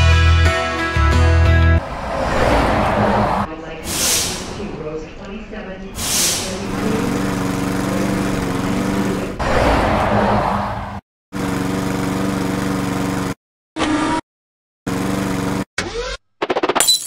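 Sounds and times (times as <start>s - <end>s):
burst of hiss: 3.9s - 4.6s, 6.0s - 6.6s.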